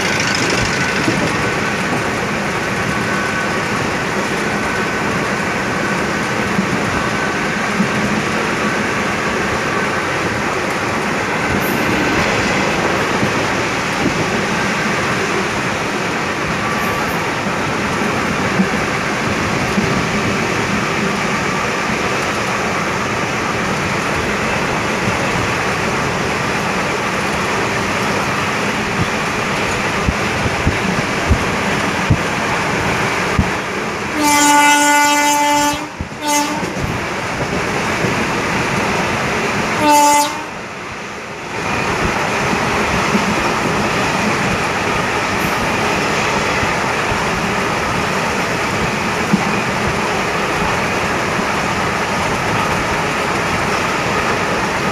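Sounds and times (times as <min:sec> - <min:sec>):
wheel clicks over rail joints: 0:00.0 - 0:02.0
moving passenger train: 0:00.0 - 0:54.9
train horn: 0:34.1 - 0:36.9, 0:39.8 - 0:40.6.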